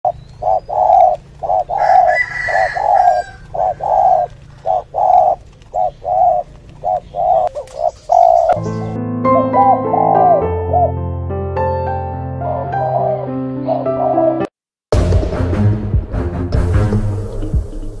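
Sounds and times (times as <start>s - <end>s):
dove cooing: 0.1s - 8.9s, 9.5s - 10.9s, 12.5s - 14.5s
higher bird call: 0.1s - 10.9s
piano music: 8.5s - 18.0s.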